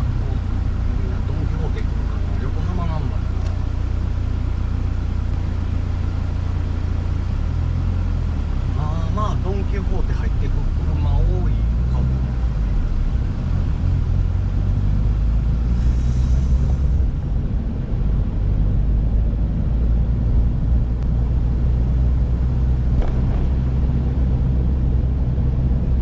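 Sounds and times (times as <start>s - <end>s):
car engine and road rumble: 0.0s - 26.0s
short hiss: 15.7s - 17.0s.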